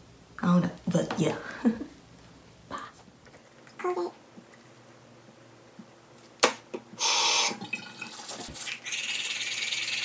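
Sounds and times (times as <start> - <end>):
tap water running: 7.0 - 10.0
toothbrush scrubbing teeth: 8.2 - 10.0.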